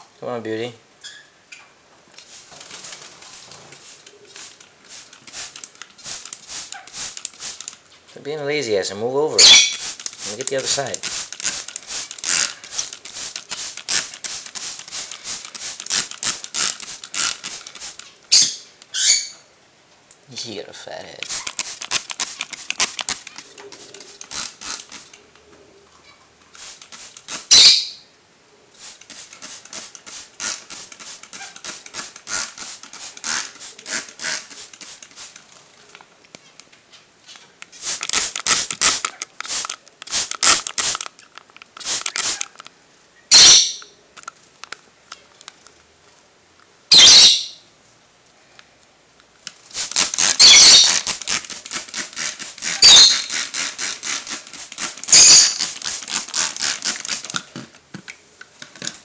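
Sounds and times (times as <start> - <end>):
water spray hissing: 2.2 - 7.8, 9.3 - 18.5, 21.0 - 25.2, 26.5 - 27.8, 28.8 - 35.5, 37.7 - 41.1, 41.8 - 42.6, 49.6 - 57.4.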